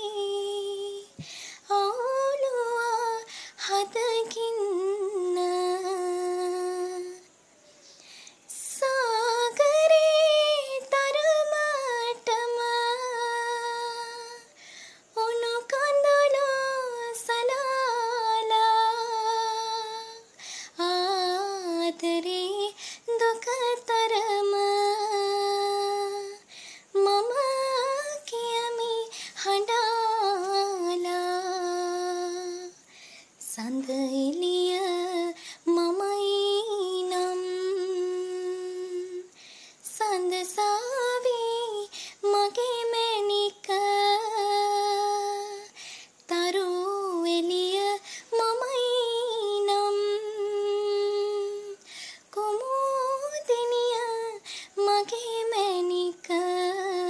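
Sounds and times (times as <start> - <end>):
woman singing unaccompanied: 0.0 - 57.0.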